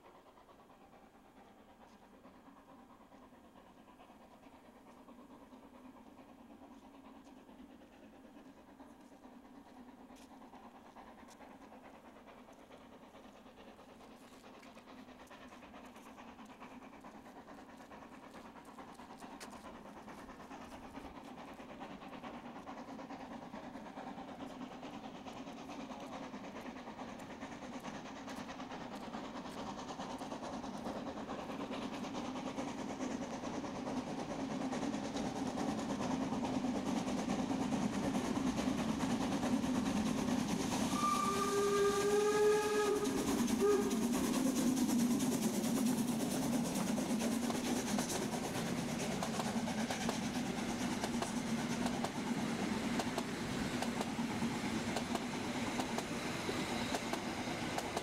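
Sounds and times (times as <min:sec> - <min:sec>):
steam locomotive passing: 0:00.0 - 0:58.0
steam whistle chord: 0:40.9 - 0:44.0.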